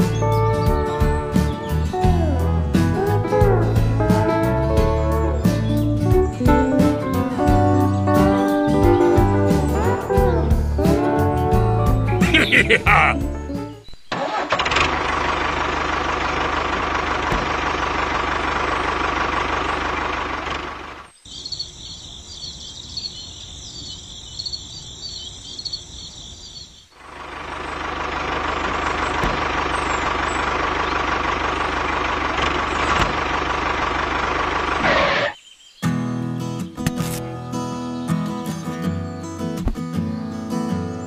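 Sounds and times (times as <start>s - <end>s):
birds chirping: 12.1s - 14.1s, 20.9s - 27.9s, 28.7s - 41.0s
tractor engine running: 14.1s - 21.1s, 27.0s - 35.3s.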